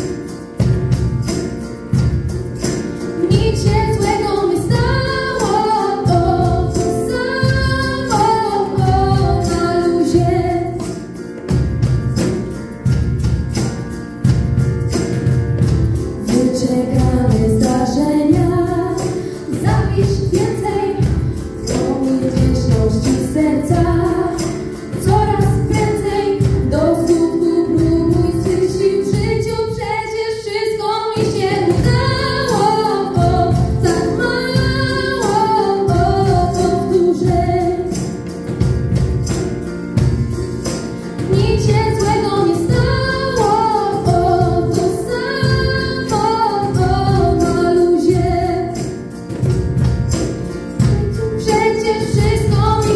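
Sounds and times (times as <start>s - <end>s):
percussion beat: 0.0s - 29.8s, 31.2s - 52.9s
keyboard: 0.0s - 52.9s
girls singing into microphones: 3.2s - 10.8s, 16.2s - 38.1s, 41.2s - 48.9s, 50.8s - 52.9s.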